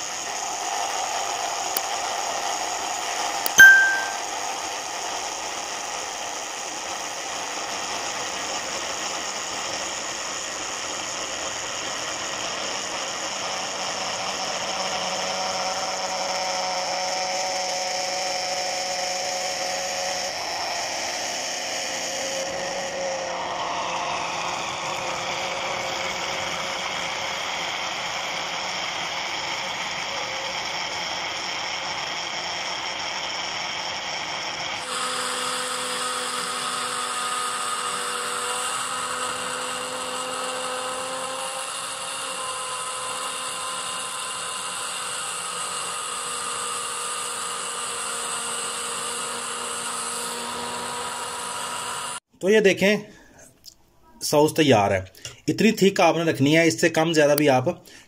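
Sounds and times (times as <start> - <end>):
electric blender motor whining: 0.0 - 52.3
short ding: 3.5 - 4.3.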